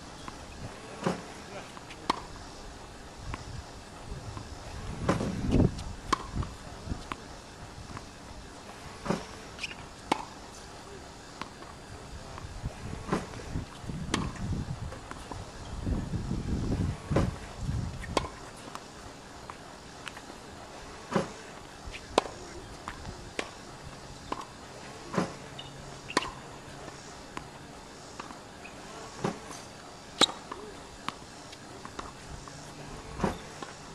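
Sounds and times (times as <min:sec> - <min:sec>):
tennis racket hitting ball: 0:06.1 - 0:07.2, 0:26.1 - 0:26.4, 0:30.2 - 0:31.2.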